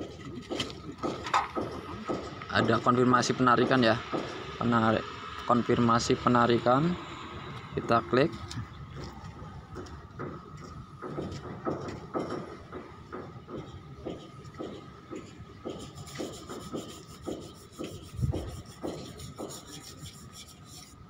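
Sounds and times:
rubbing or scraping strokes: 15.7 - 21.0.

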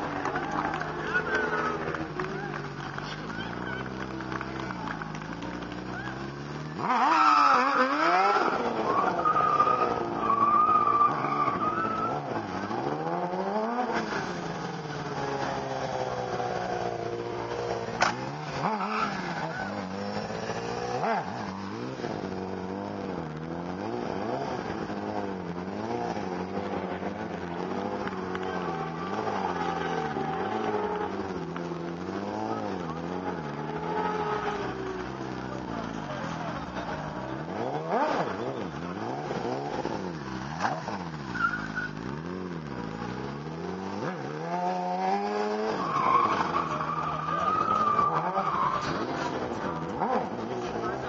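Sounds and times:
motorcycle engine revving: 0.0 - 51.0
tyre squeal: 6.9 - 12.6, 40.6 - 42.2.

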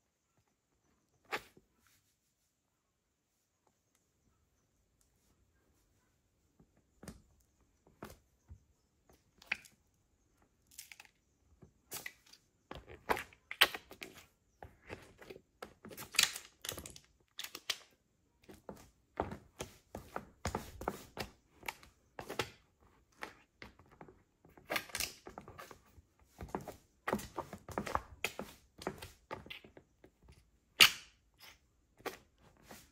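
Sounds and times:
squelching and crinkling tubes: 9.0 - 32.9.

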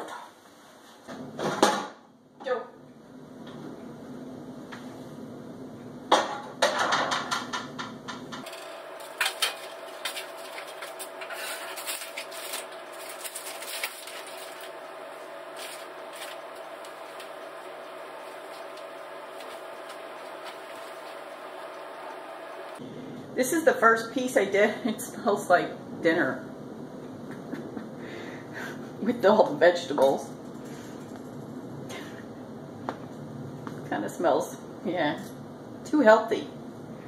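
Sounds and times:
foil crinkling: 8.5 - 22.8.

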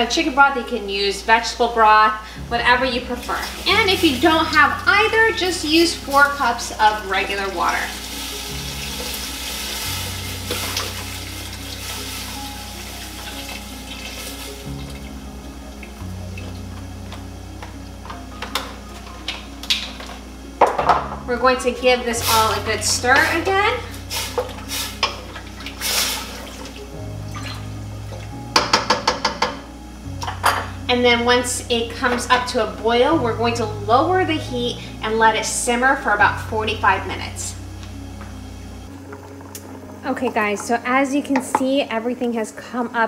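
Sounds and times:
soft background music: 0.0 - 43.0
broth pouring into pot: 3.2 - 16.6, 22.0 - 28.7
liquid swishing and sloshing: 23.9 - 27.7
spoon knocking on pot: 28.5 - 29.6.

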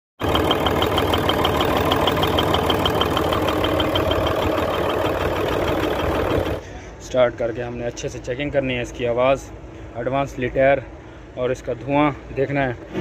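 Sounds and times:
rapid engine ticking: 0.2 - 6.6
diesel truck engine running: 0.2 - 6.9.

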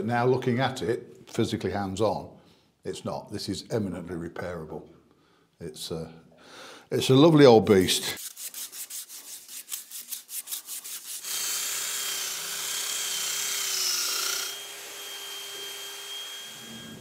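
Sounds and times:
scrubbing metal pipe: 8.2 - 11.2
cordless drill whirring: 11.2 - 17.0.

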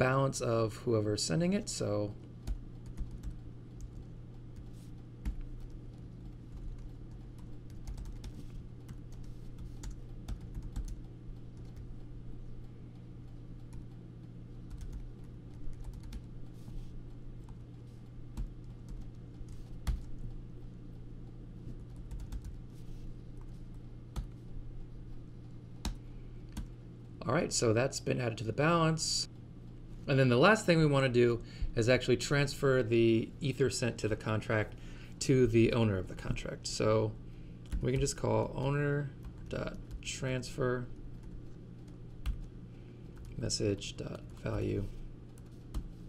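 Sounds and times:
steady low hum: 0.0 - 46.0
computer keyboard typing: 2.4 - 12.1, 14.7 - 16.4, 17.4 - 20.4, 21.8 - 22.6, 25.8 - 26.7, 41.1 - 42.5.

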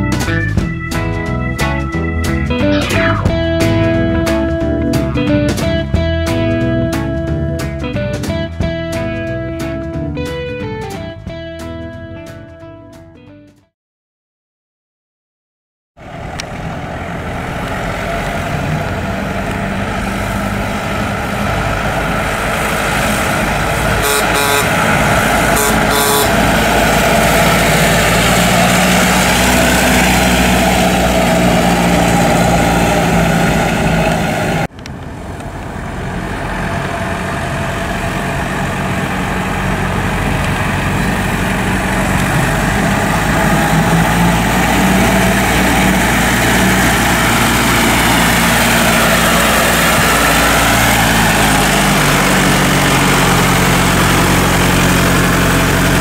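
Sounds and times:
car engine running: 16.0 - 56.0.

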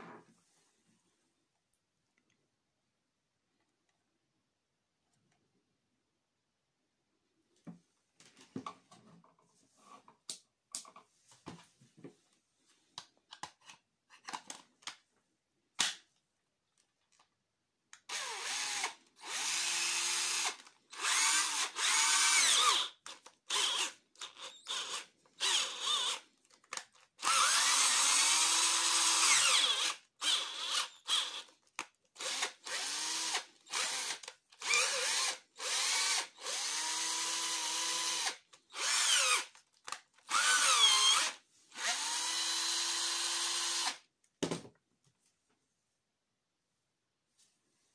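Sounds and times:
cordless drill motor whining: 18.1 - 26.2, 27.2 - 31.5, 32.2 - 39.6, 40.2 - 44.0.

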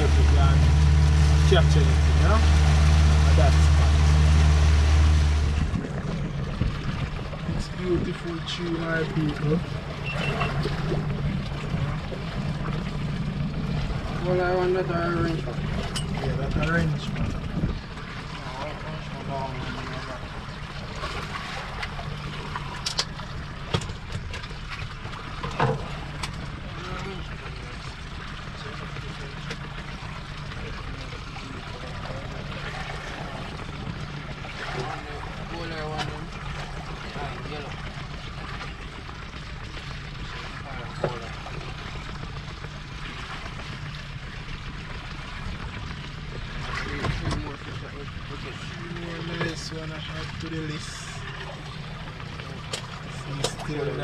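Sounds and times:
boat motor running: 0.0 - 54.0.

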